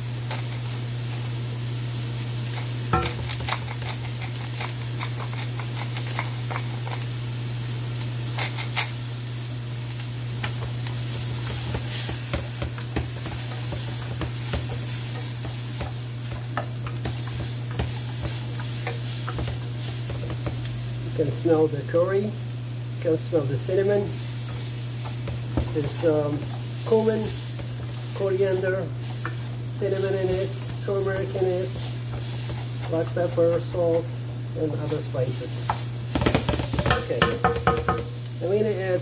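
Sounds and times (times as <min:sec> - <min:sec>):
vegetables sizzling in a pan: 0:00.0 - 0:39.0
spatula scraping and tapping pan: 0:10.4 - 0:20.8, 0:23.8 - 0:34.1, 0:35.6 - 0:38.2.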